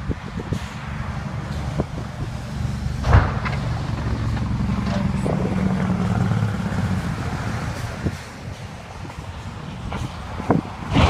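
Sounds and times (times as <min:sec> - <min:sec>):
heavy vehicle engines rumbling: 0:00.0 - 0:11.0
wind hiss: 0:00.0 - 0:11.0
sharp thump: 0:03.0 - 0:03.8.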